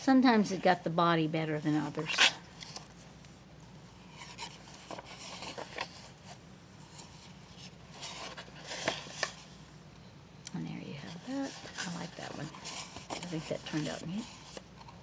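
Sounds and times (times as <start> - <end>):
paper rubbing and rustling: 4.0 - 9.5, 11.0 - 15.0.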